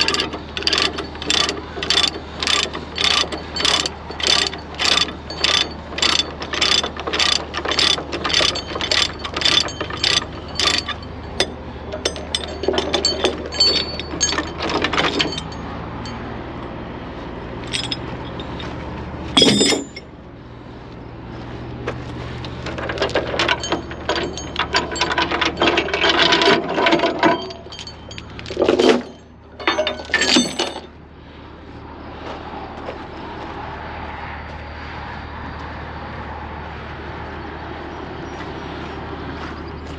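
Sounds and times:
ratchet pawl clicking: 0.0s - 11.5s
chain clinking and rattling: 0.0s - 16.3s, 17.6s - 20.1s, 22.4s - 31.0s.

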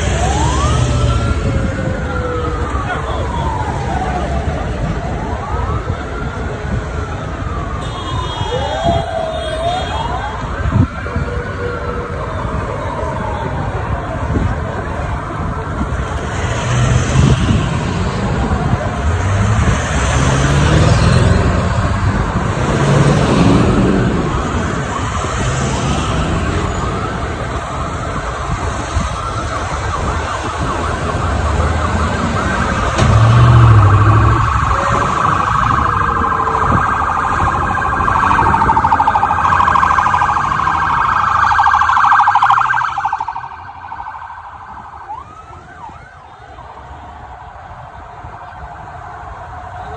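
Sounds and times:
sirens wailing and warbling: 0.0s - 49.9s
vehicle engines running: 14.0s - 45.8s.

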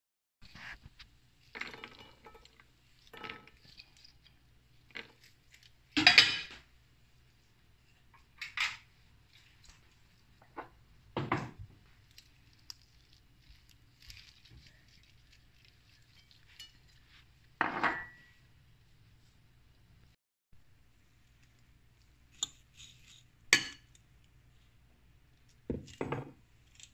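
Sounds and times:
dishes and utensils clattering: 6.0s - 6.6s, 17.6s - 18.3s.

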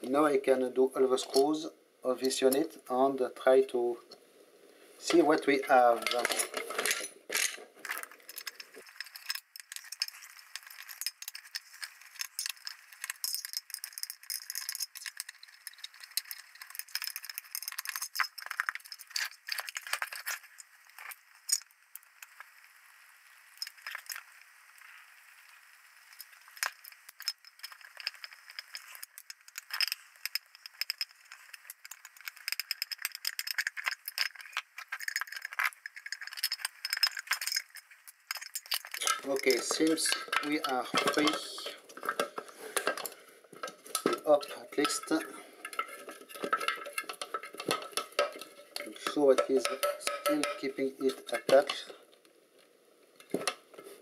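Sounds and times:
screwdriver clicking on metal screws: 44.8s - 50.7s.

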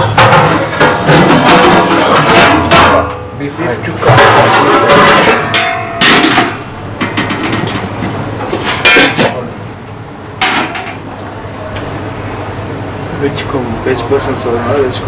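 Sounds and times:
metal utensils clanking on pots: 0.0s - 9.4s, 10.4s - 11.0s.

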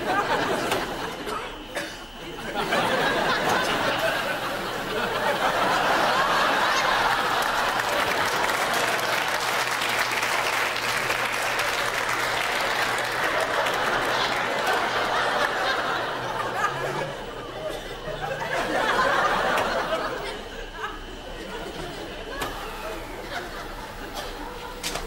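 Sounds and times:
audience laughing: 0.0s - 25.0s
audience applauding: 3.0s - 17.4s.

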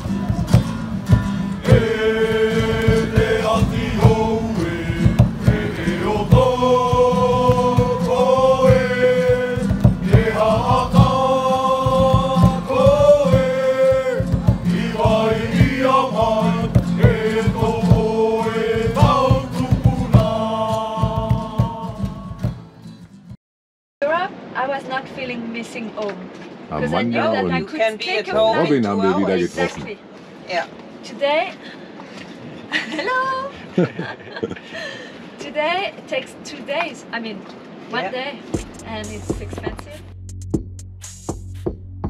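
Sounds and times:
voices singing held notes: 0.0s - 22.6s
low drumming: 0.0s - 22.7s, 38.6s - 42.0s.

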